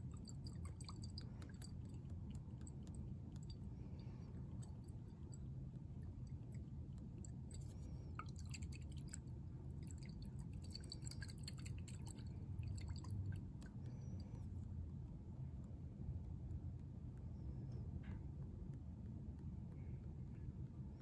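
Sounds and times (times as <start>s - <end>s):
liquid sloshing in a flask: 0.0s - 2.0s, 6.3s - 13.6s
low steady hum: 0.0s - 21.0s
small liquid clicks and drips: 0.0s - 21.0s.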